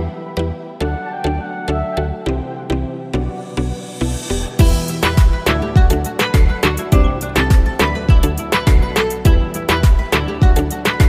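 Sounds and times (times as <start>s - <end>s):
background music with drum beat: 4.4s - 11.0s.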